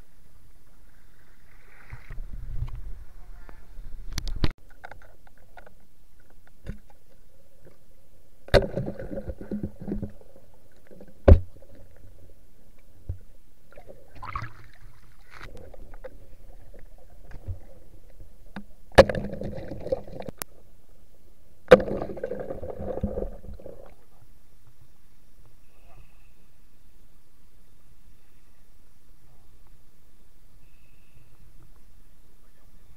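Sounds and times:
sharp underwater knocks: 8.5 - 10.2, 18.5 - 20.3, 21.7 - 23.9
rushing bubbling water: 13.7 - 18.2, 19.0 - 20.4, 21.7 - 24.1.

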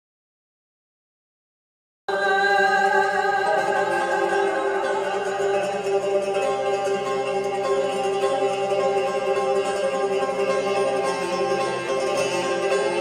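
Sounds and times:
traditional string ensemble music: 2.1 - 13.0.

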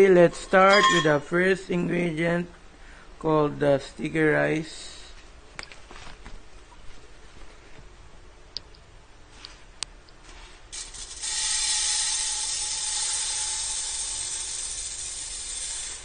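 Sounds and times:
faint ringing from wok: 0.7 - 1.2.

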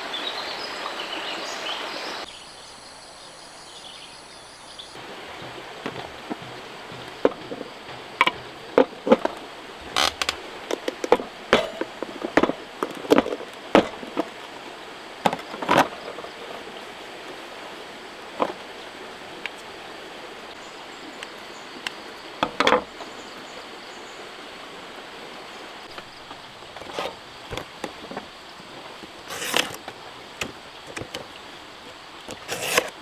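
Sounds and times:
river rushing: 0.0 - 2.3, 4.9 - 33.0
irregular knocks and clinks: 5.3 - 14.3.

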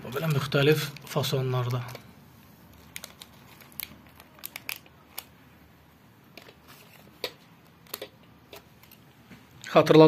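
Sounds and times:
faint room noise: 0.0 - 10.0
plastic bags crinkling: 2.7 - 5.4.

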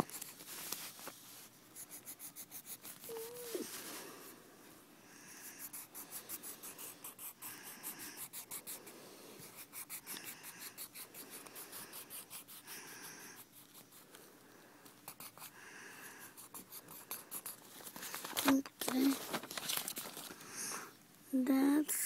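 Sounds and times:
pencil scribbling on paper: 0.0 - 0.5, 1.8 - 3.7, 5.4 - 14.1, 15.0 - 18.2.

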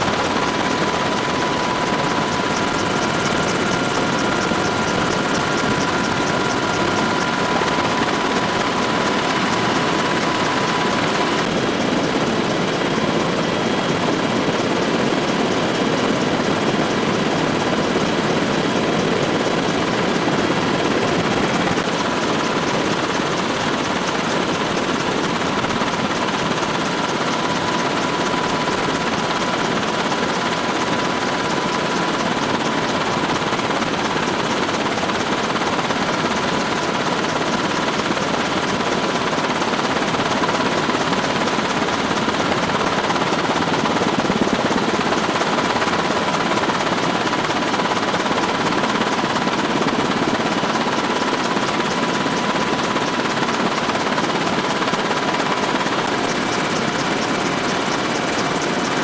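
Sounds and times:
helicopter rotor and engine: 0.0 - 59.0.

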